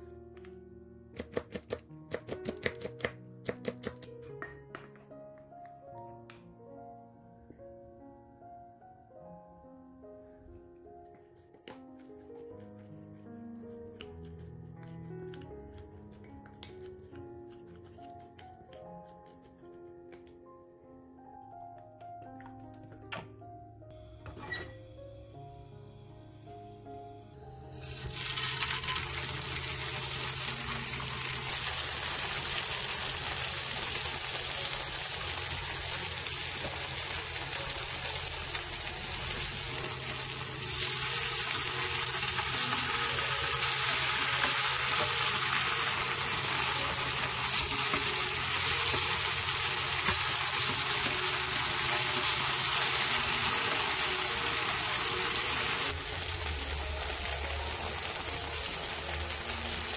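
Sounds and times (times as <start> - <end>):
tofu sizzling in hot oil: 27.8 - 59.9.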